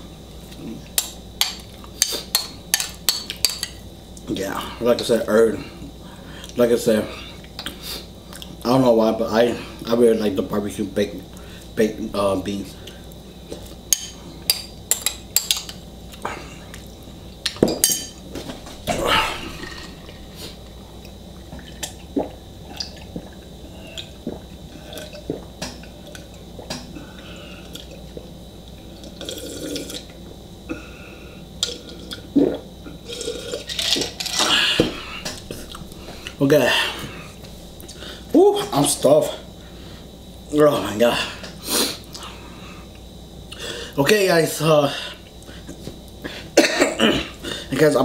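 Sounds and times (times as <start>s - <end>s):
person swallowing and gulping: 18.8s - 30.9s, 31.6s - 38.0s.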